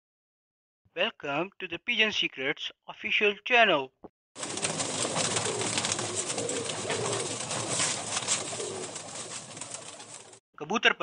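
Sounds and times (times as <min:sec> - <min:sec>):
pigeons cooing: 0:04.4 - 0:10.4.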